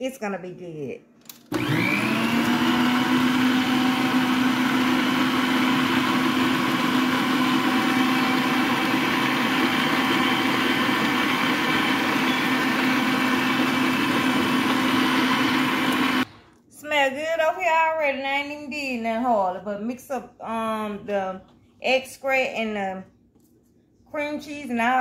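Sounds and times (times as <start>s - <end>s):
stand mixer motor whining: 1.5s - 16.3s.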